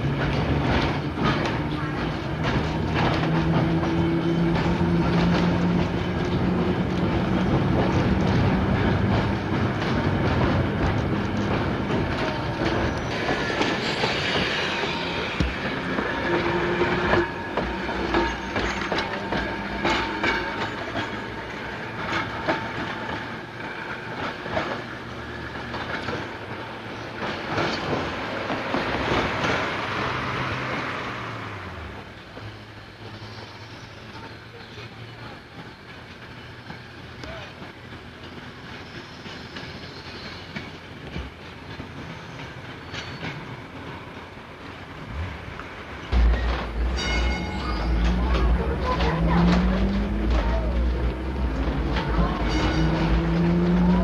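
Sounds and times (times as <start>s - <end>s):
streetcar rumbling on track: 0.0s - 54.0s
wheels clicking over rail joints: 0.0s - 54.0s.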